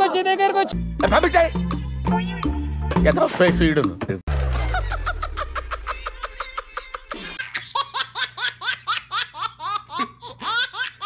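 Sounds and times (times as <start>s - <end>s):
man laughing: 4.4s - 7.8s
baby laughing: 4.8s - 11.0s.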